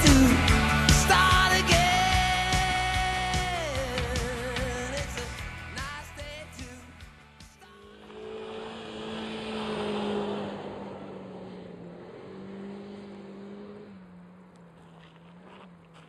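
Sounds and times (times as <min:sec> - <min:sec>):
car engine at high revs: 0:07.8 - 0:16.0.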